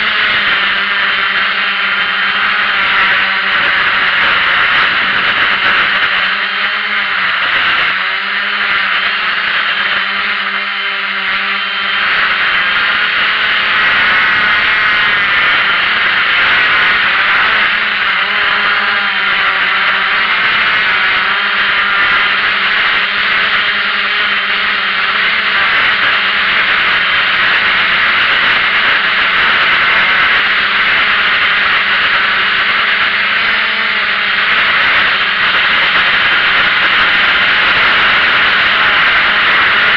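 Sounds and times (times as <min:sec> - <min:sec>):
drone propellers whirring: 0:00.0 - 0:39.9.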